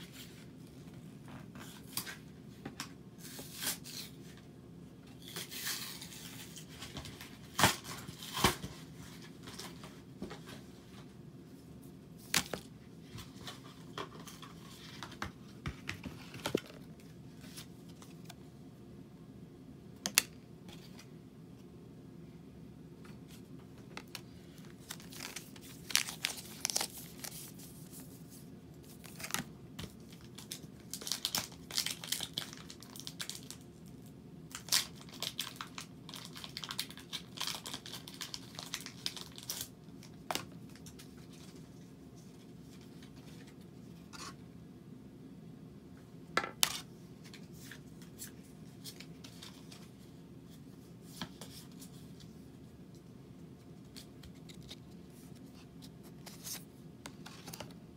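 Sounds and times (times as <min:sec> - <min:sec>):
plastic packaging tearing and crinkling: 0:24.8 - 0:27.5, 0:30.1 - 0:33.6, 0:34.5 - 0:40.2.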